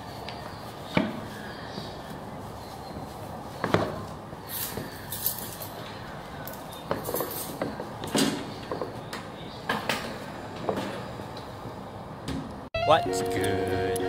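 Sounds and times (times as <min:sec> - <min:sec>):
laces rustling: 0:00.2 - 0:07.9.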